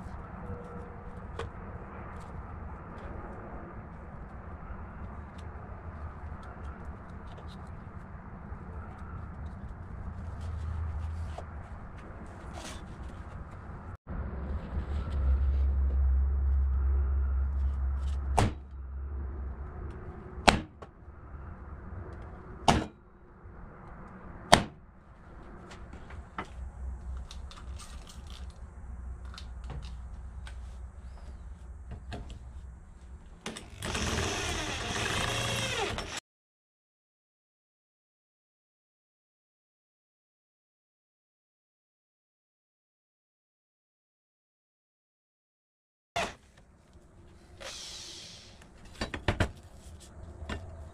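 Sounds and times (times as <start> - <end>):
loud low rumble: 13.8 - 24.4, 25.2 - 33.3
power drill boring into steel: 33.6 - 36.2.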